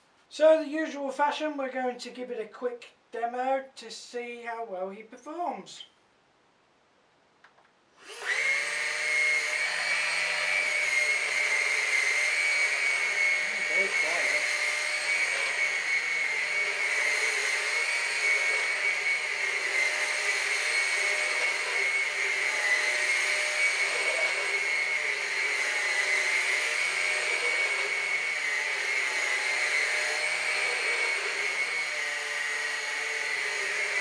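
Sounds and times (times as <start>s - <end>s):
vacuum motor whine: 8.0s - 34.0s.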